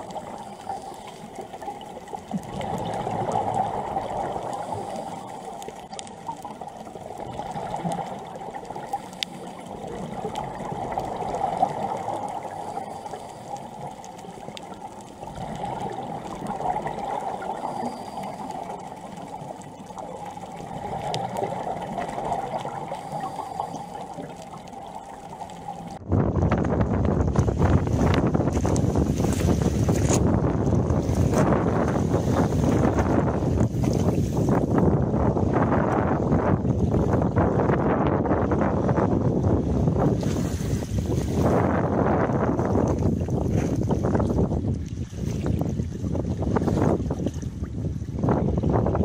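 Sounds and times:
muffled underwater hiss: 0:00.0 - 0:26.0.

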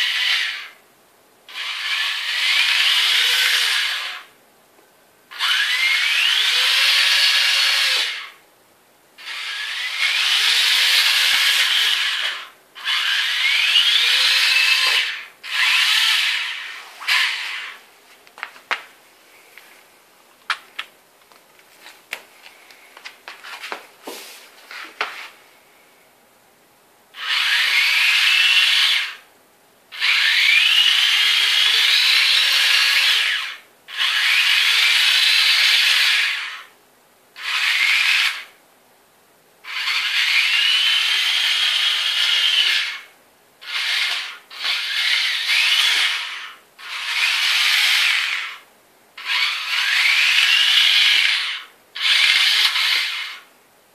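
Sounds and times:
small electric motors whining: 0:00.0 - 0:00.8, 0:01.5 - 0:04.3, 0:05.3 - 0:08.4, 0:09.2 - 0:17.8, 0:27.2 - 0:29.2, 0:29.9 - 0:36.7, 0:37.4 - 0:38.6, 0:39.7 - 0:53.5.

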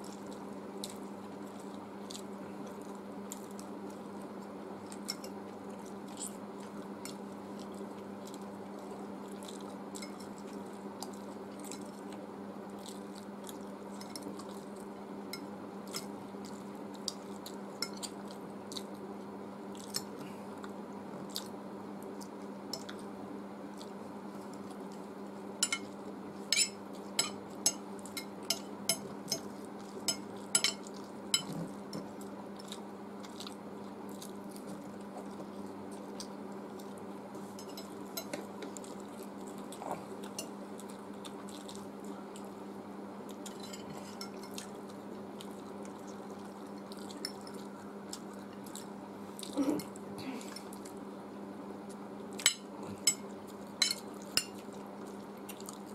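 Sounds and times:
chewing noodles: 0:00.0 - 0:19.1, 0:19.7 - 0:23.1, 0:23.7 - 0:51.0, 0:51.9 - 0:55.9
fork clinking on glass plate: 0:25.6 - 0:25.9, 0:26.5 - 0:29.5, 0:30.1 - 0:32.1, 0:37.6 - 0:38.4.

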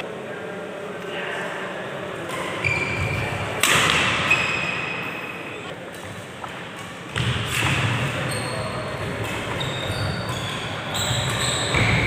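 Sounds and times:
rackets striking shuttlecock: 0:03.6 - 0:04.3.

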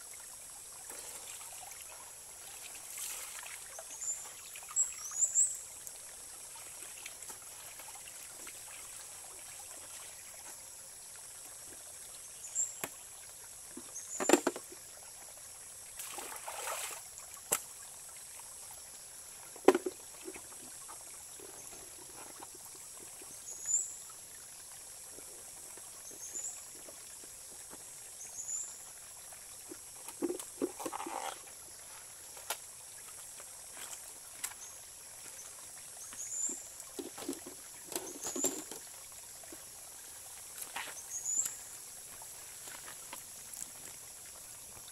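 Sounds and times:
stream running over rocks: 0:00.0 - 0:44.9
water splashing: 0:16.0 - 0:17.6.

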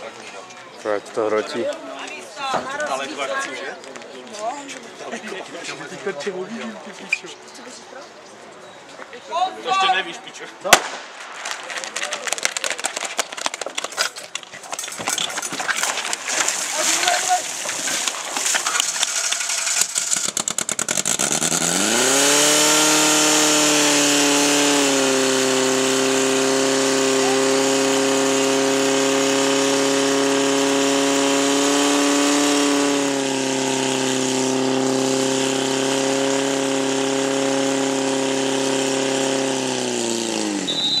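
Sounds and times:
fire pump engine revving: 0:13.8 - 0:41.0.

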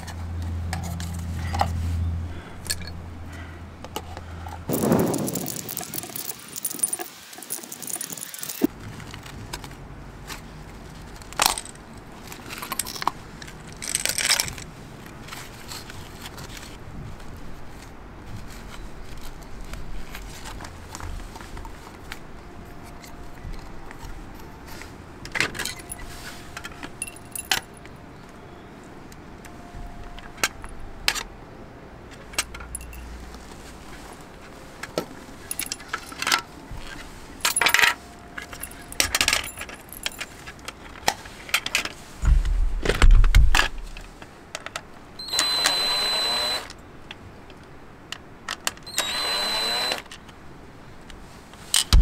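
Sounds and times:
sharp metallic clicks and jingles: 0:04.7 - 0:08.7, 0:25.3 - 0:27.8, 0:32.3 - 0:33.2, 0:35.4 - 0:41.0
tools set down on concrete: 0:34.8 - 0:40.3.

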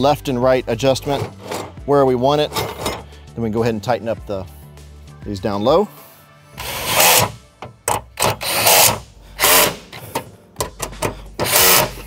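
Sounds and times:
power driver short bursts: 0:06.6 - 0:07.4, 0:08.2 - 0:12.0.

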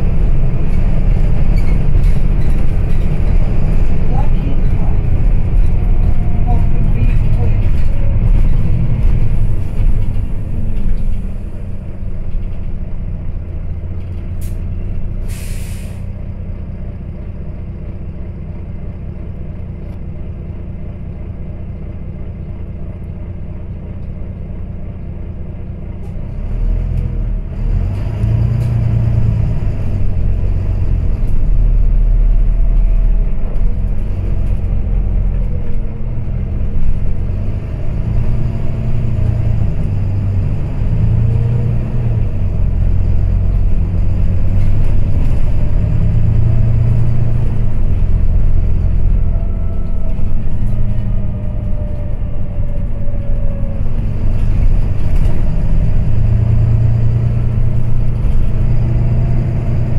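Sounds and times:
diesel bus engine: 0:00.0 - 0:59.9
air hiss: 0:15.3 - 0:16.1.

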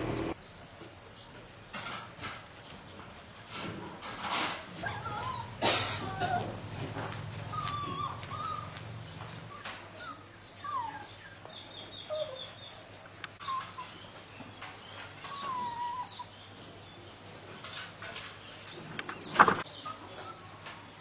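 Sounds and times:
small dog whimpering: 0:04.8 - 0:06.6, 0:07.5 - 0:08.9, 0:09.5 - 0:11.4, 0:12.0 - 0:12.6, 0:15.3 - 0:16.3.

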